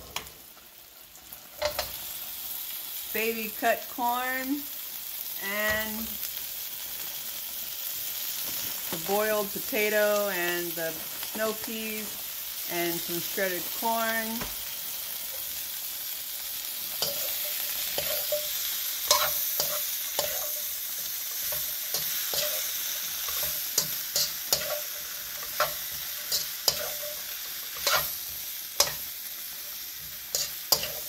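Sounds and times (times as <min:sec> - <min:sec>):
vegetables sizzling in a wok: 0:00.0 - 0:31.0
metal spatula clinking on pan: 0:01.6 - 0:02.0, 0:17.0 - 0:20.7, 0:23.3 - 0:28.1, 0:28.8 - 0:29.0, 0:30.3 - 0:31.0.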